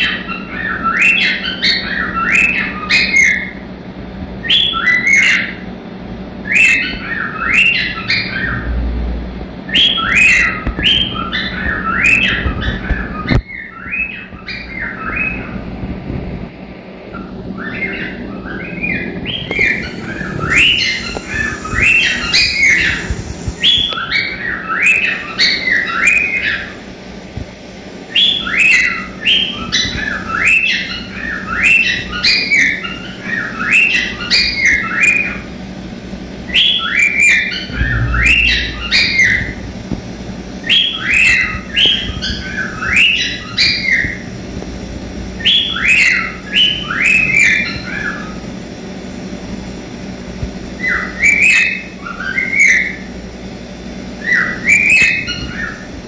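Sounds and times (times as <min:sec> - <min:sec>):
cockatiel whistling song: 0:19.5 - 0:26.6.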